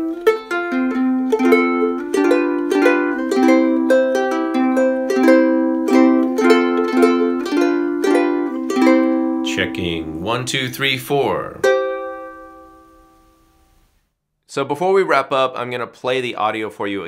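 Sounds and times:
ukulele plucked notes and chords: 0.0 - 13.5.

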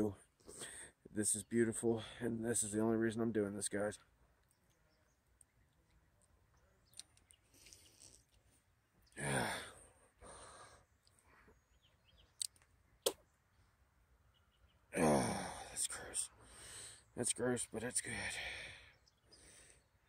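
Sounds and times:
man groaning sigh: 9.2 - 9.8, 15.0 - 15.7
sharp clicks: 12.4 - 13.2.

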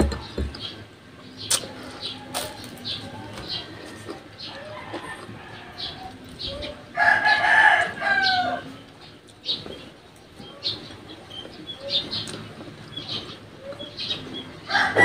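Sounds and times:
rooster crowing: 6.9 - 8.7, 14.7 - 15.0.

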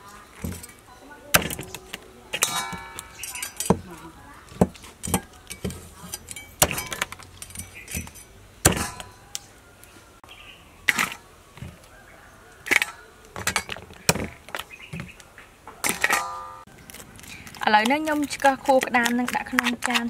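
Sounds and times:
cleaver chopping on wooden board: 1.4 - 1.8, 6.6 - 7.1, 8.0 - 9.1.

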